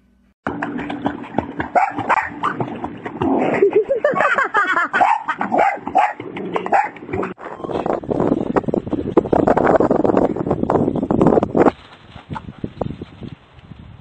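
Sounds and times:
dog barking and yipping: 1.7 - 2.7, 4.9 - 7.3
woman laughing: 3.5 - 5.0.

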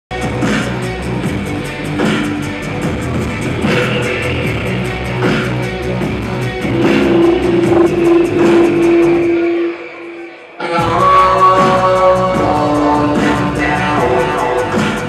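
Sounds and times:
electric guitar: 6.5 - 11.3
live band music: 6.6 - 11.9.

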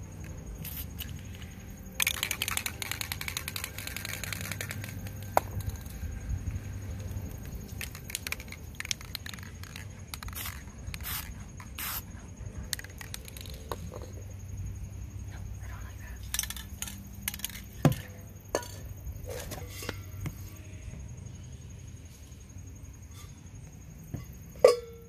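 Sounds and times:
spray can rattling: 0.6 - 1.2, 2.0 - 5.9, 7.7 - 12.0, 12.7 - 13.8, 16.3 - 17.6
spray paint hissing: 0.6 - 5.8, 7.4 - 12.1, 12.7 - 13.8.

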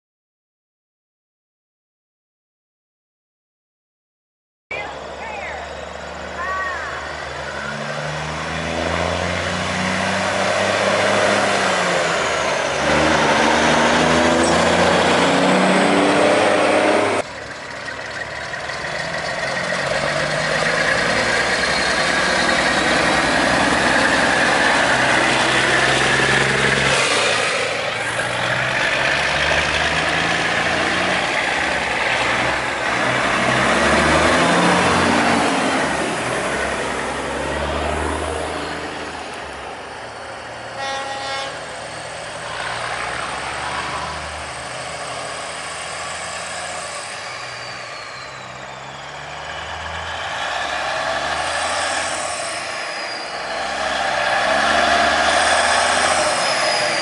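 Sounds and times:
diesel trucks driving past: 4.7 - 57.0.

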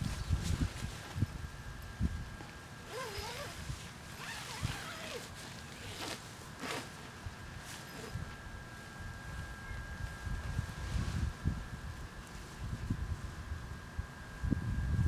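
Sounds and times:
tent zipper being pulled: 2.8 - 8.2.

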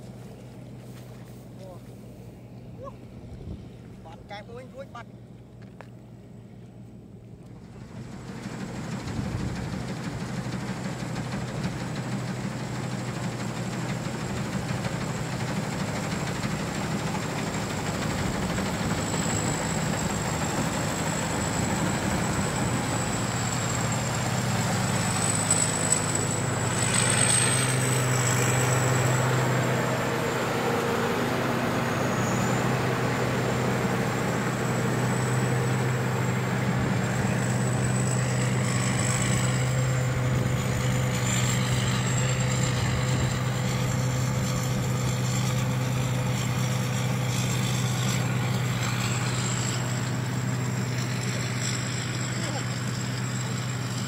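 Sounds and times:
combine harvester engine running: 6.1 - 54.0
thin high whine: 17.5 - 54.0.

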